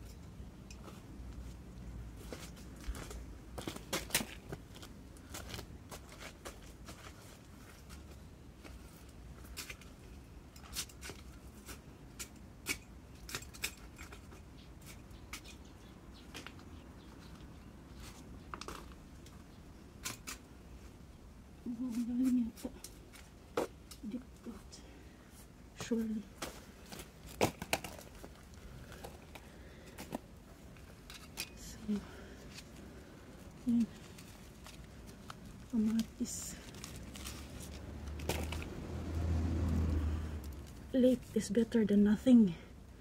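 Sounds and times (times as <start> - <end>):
garden shears snipping stems: 21.7 - 24.5, 33.6 - 42.4.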